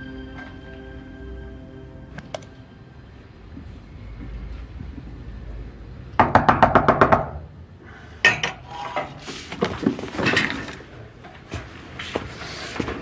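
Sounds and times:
knocking hard on a door: 6.2s - 7.4s.

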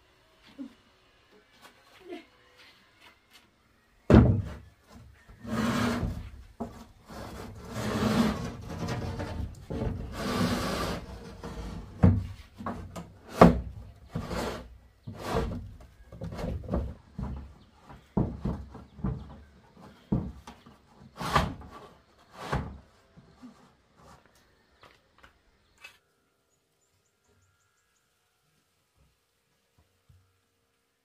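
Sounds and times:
metal roofing sheet scraping wood: 4.2s - 24.2s.

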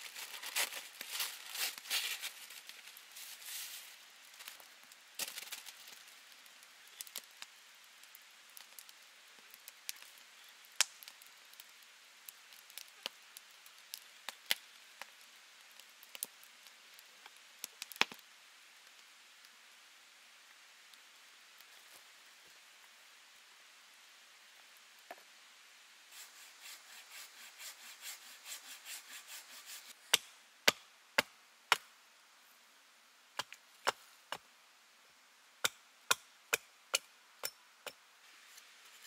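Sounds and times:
paper crinkling: 0.0s - 4.6s.

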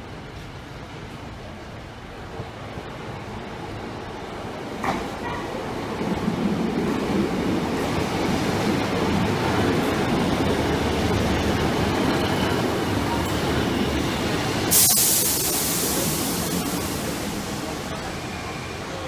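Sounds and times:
train rumbling past: 0.0s - 19.0s
loud hiss: 13.9s - 19.0s.

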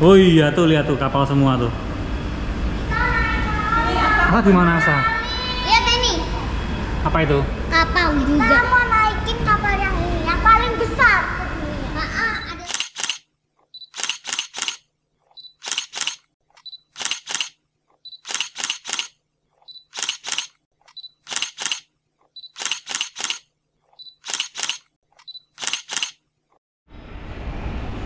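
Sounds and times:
camera shutter beep and clicks: 12.4s - 26.2s.

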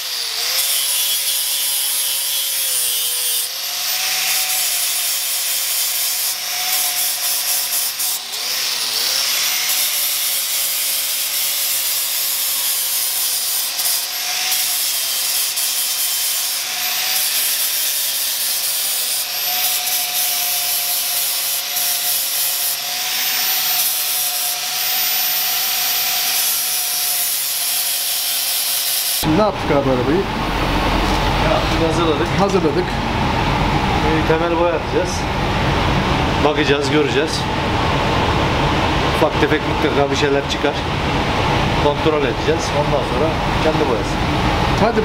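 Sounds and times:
power sander rasping: 0.0s - 29.3s.

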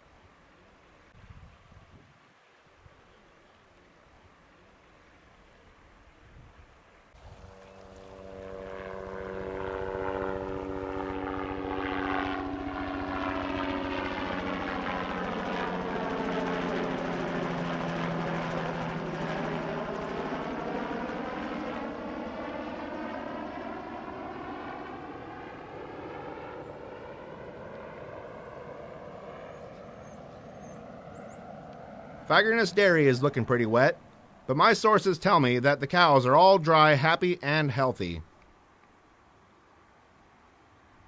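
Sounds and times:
aircraft engine drone: 6.8s - 41.0s.

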